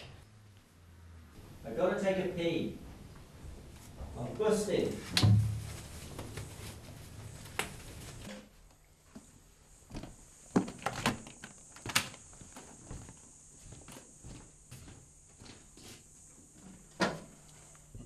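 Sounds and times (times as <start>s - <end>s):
door shutting with heavy thud: 5.1s - 5.6s.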